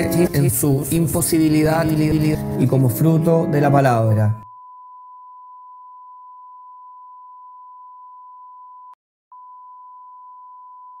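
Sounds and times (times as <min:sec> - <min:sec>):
electronic sine-wave beep: 0:04.4 - 0:11.0.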